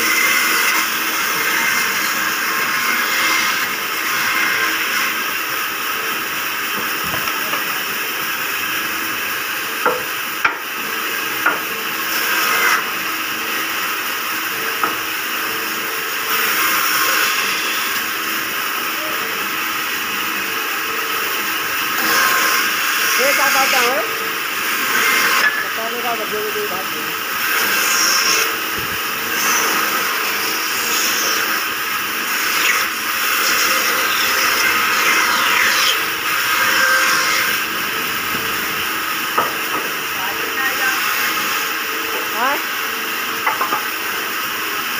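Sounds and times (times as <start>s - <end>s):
band saw cutting wood: 0.0s - 44.9s
wood knocking on machine: 6.7s - 7.7s, 9.8s - 10.6s, 39.3s - 40.9s, 43.4s - 43.9s.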